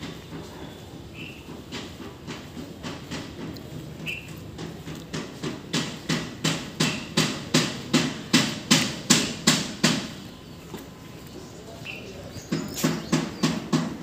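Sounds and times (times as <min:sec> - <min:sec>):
footsteps on concrete: 0:01.3 - 0:14.0.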